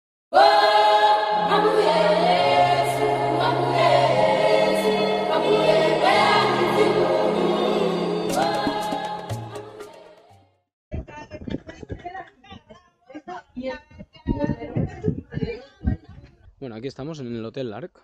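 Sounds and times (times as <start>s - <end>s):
choir singing held notes: 0.3s - 10.3s.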